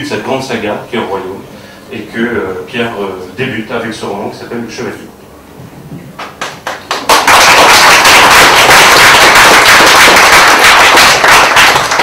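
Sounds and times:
audience applauding: 6.4 - 12.0.

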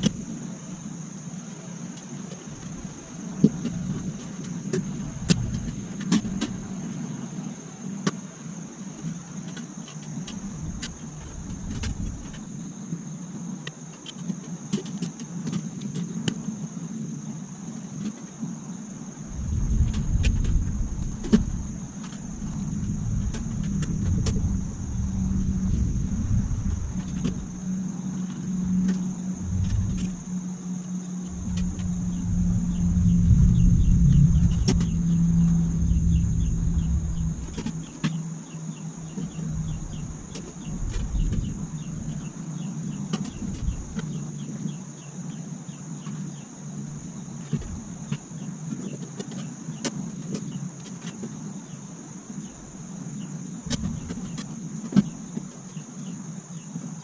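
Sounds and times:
high insect buzz and chirping: 0.0 - 57.0
vehicle engine rumble: 2.6 - 6.8, 19.2 - 42.4, 43.0 - 44.2, 53.7 - 54.4.

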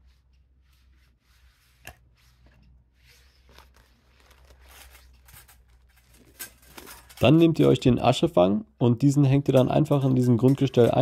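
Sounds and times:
rustling of fabric bag: 3.0 - 7.3.

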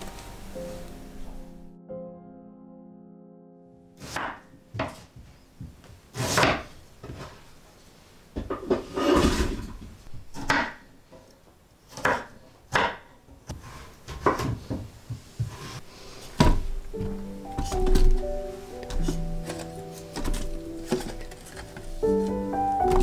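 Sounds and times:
knife chopping on wooden board: 11.9 - 14.6
rough scraping: 18.9 - 23.0.

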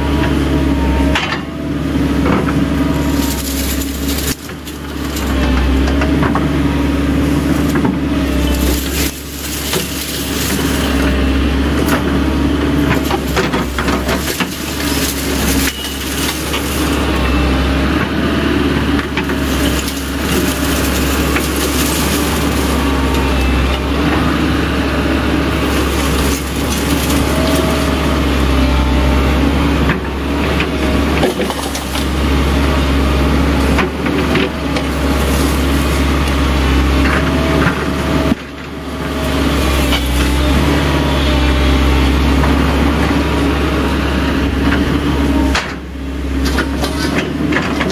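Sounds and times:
excavator engine running: 0.0 - 47.9
metallic clanks and scraping: 2.4 - 6.5, 7.3 - 11.2, 11.8 - 17.3, 19.0 - 23.9, 25.5 - 28.4, 46.4 - 47.9.

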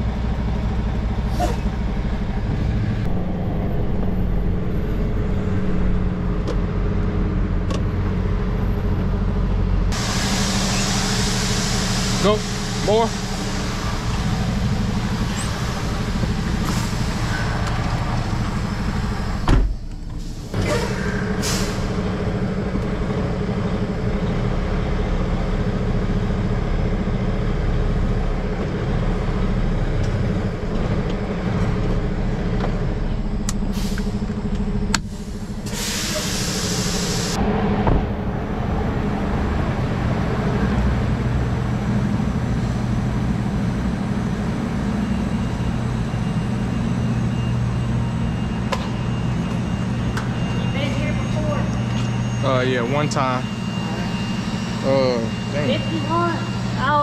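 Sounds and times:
diesel truck engine running: 0.0 - 57.0
air brake hiss: 10.0 - 14.1, 16.6 - 17.6, 20.2 - 22.0, 33.7 - 34.2, 35.0 - 37.4
thump: 19.4 - 19.8, 37.8 - 38.1.

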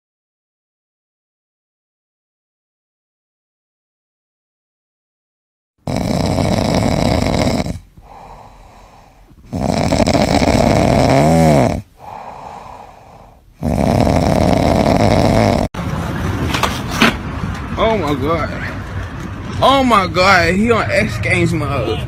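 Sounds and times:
cat snoring: 5.8 - 15.8
cat breathing: 5.9 - 15.7.

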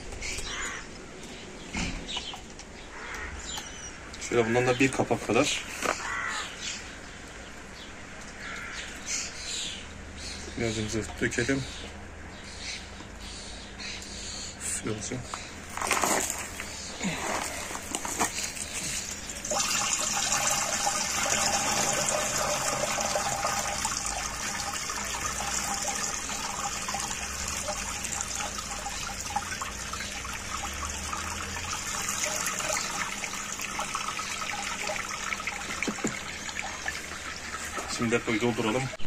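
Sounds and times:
water pouring into plastic tank: 17.2 - 39.0.

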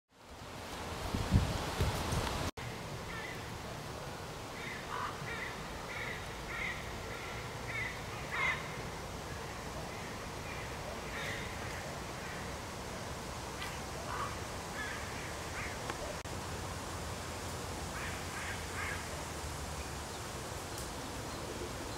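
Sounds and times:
steady background hiss: 0.2 - 21.9.

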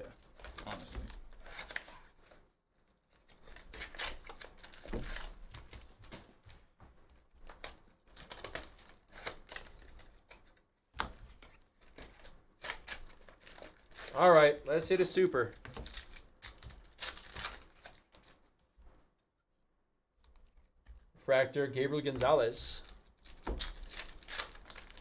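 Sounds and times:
plastic wrapping crinkling: 0.0 - 18.6, 22.7 - 25.0
cardboard box tearing: 23.2 - 25.0.

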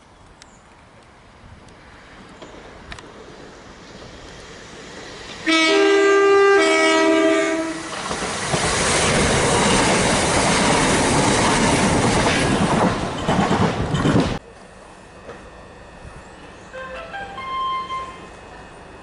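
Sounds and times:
train rushing past: 1.2 - 19.0
train two-tone horn: 5.4 - 7.9, 16.4 - 18.6.

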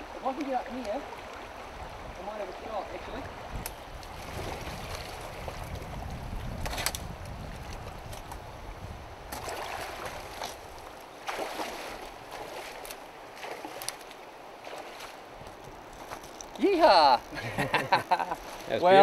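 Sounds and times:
river water running: 0.0 - 19.0
wind buffeting microphone: 1.3 - 10.9
splashes in water: 9.3 - 15.2.

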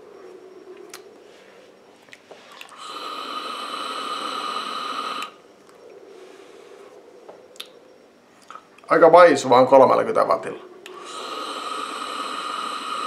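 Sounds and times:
vape airflow hiss and whistle: 2.8 - 5.5, 10.9 - 13.0.

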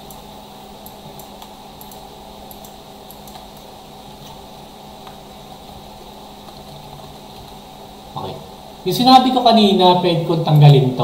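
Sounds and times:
low background hum: 0.0 - 11.0
computer mouse clicks: 0.8 - 4.4.

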